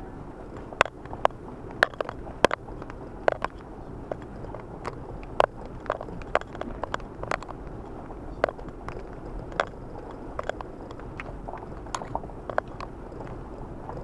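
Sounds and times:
car rumbling over dirt track: 0.0 - 14.0.

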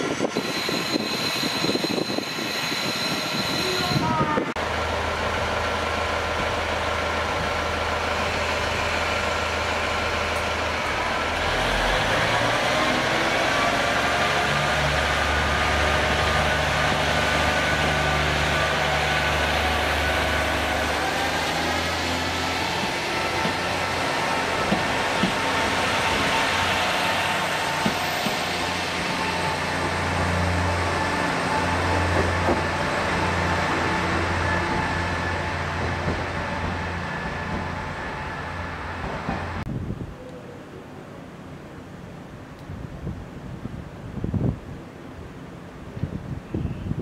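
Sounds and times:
train wheels clacking on rail joints: 22.6 - 30.0, 31.9 - 35.1.

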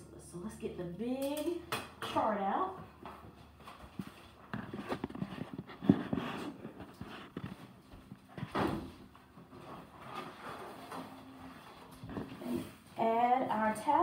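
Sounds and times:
footsteps: 2.8 - 13.0.

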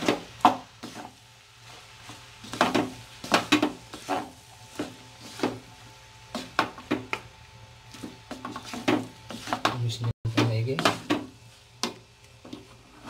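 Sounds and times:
spatulas scraping a wok: 0.0 - 7.1, 7.8 - 11.7, 12.4 - 13.0.

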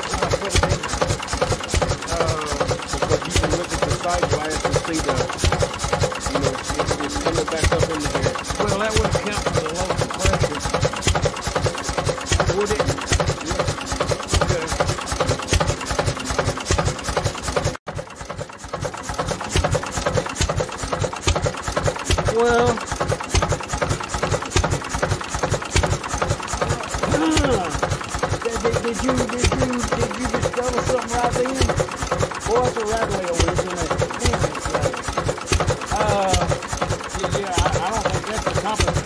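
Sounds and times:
engine mechanical clatter: 0.0 - 39.0.

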